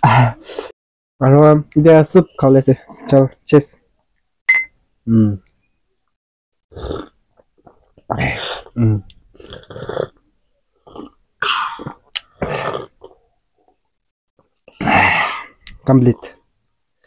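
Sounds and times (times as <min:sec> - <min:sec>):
small burp: 0:06.7 - 0:10.2, 0:10.8 - 0:13.2.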